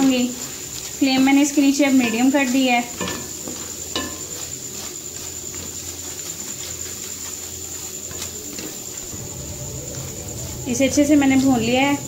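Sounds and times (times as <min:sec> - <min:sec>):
soft frying sizzle: 0:00.0 - 0:12.0
spatula scraping metal pan: 0:00.0 - 0:12.0.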